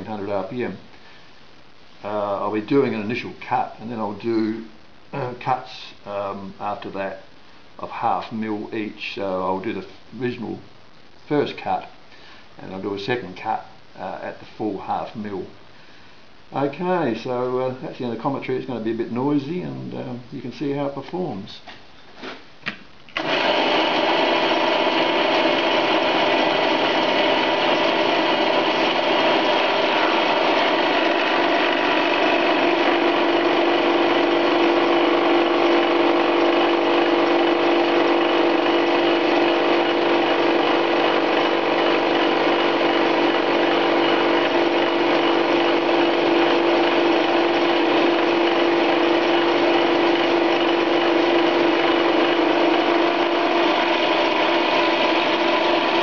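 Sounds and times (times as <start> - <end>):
metal lathe machining steel: 23.2 - 56.0.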